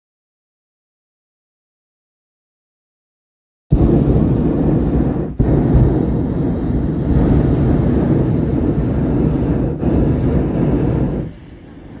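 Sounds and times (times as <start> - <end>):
wind buffeting microphone: 3.7 - 12.0.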